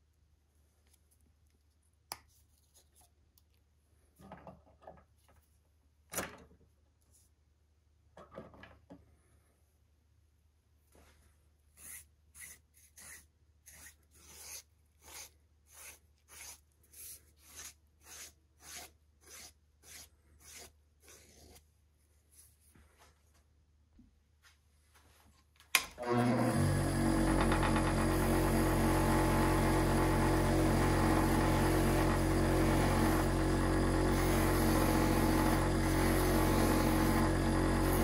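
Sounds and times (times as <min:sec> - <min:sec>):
leather edge being filed: 0:11.7 - 0:21.6.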